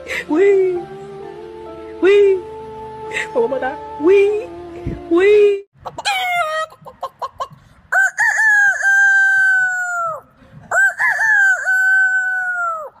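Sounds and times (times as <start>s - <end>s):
rooster crowing: 7.9s - 13.0s.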